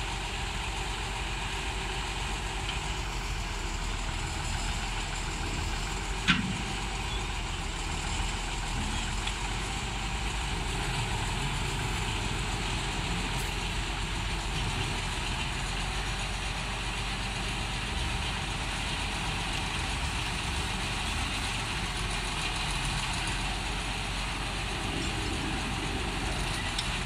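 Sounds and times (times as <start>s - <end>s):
crane engine running at low revs: 0.0s - 27.0s.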